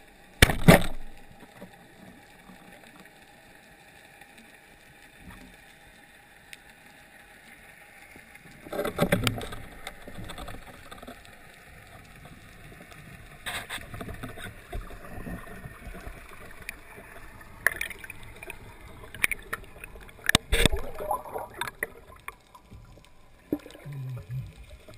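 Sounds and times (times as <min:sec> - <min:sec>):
faint water hiss: 0:01.0 - 0:24.9
rushing water bursts: 0:13.4 - 0:24.9.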